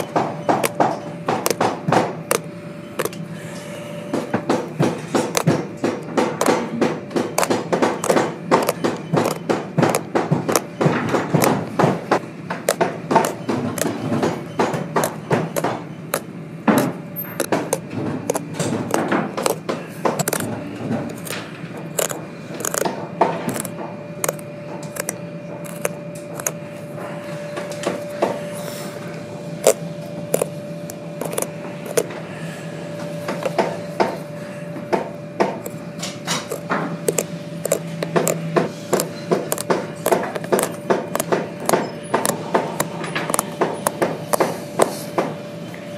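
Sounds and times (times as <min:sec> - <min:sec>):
blade cutting leather stitching: 0:00.0 - 0:03.2, 0:04.4 - 0:26.6, 0:29.6 - 0:32.1, 0:35.4 - 0:45.1.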